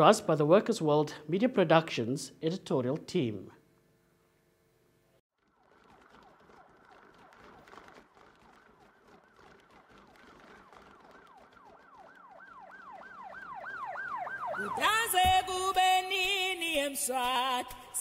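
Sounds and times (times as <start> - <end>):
siren wailing: 5.5 - 15.4
music with sustained singing: 14.6 - 18.0.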